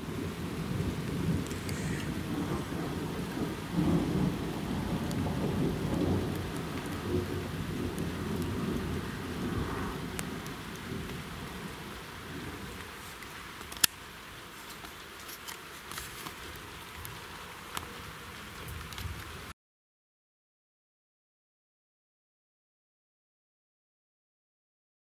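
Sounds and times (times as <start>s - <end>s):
distant thunder rumbling: 0.0s - 13.6s.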